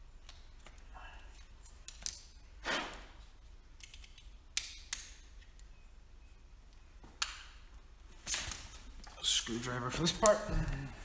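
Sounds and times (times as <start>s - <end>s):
plastic connectors clicking: 0.2s - 2.3s, 3.7s - 5.7s
wires rustling: 6.4s - 11.0s.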